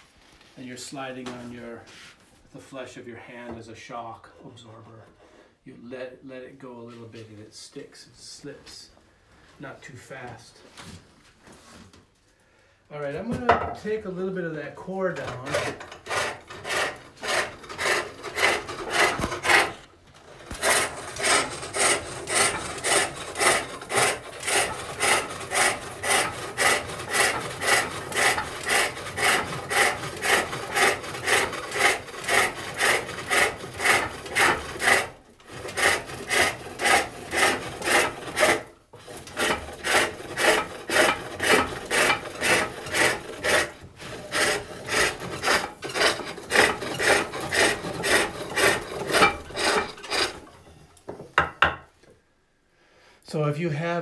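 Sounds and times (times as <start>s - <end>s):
hook tool rasping on wood: 15.2s - 50.6s.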